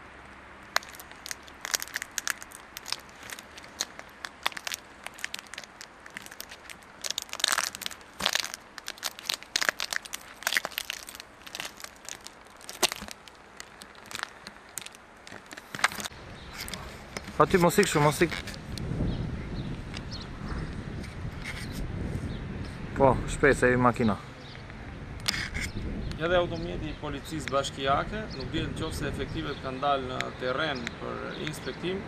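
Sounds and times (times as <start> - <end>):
footsteps crunching on forest litter: 0.7 - 18.8.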